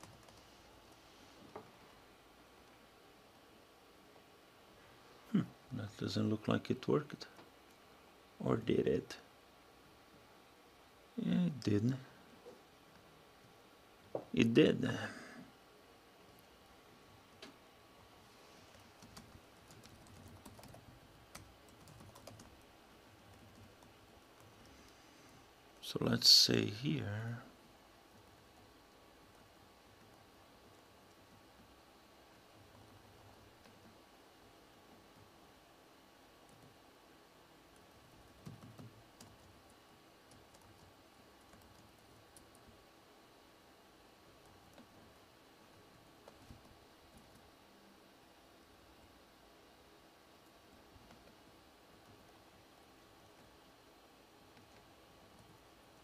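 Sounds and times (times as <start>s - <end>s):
typing on computer keyboard: 0.0s - 0.4s, 18.7s - 22.6s, 23.2s - 24.5s, 37.8s - 39.6s, 40.3s - 42.8s
faint keyboard typing: 0.0s - 1.7s, 18.6s - 25.1s, 27.6s - 34.1s, 36.4s - 36.8s, 37.6s - 42.8s, 44.2s - 47.6s, 50.4s - 53.7s, 54.4s - 56.0s.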